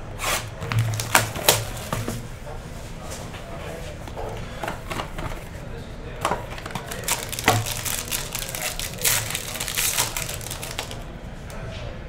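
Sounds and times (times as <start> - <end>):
foil wrapper crinkling: 0.3 - 2.2, 6.3 - 11.0.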